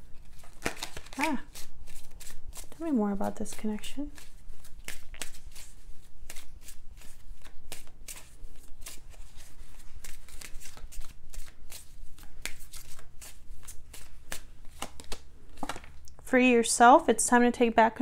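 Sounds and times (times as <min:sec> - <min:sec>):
cards being shuffled: 0:00.0 - 0:16.0.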